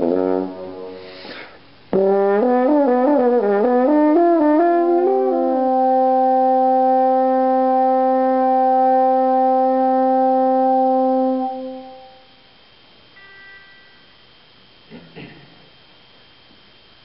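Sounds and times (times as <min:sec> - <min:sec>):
french horn long low note: 0:02.0 - 0:12.3.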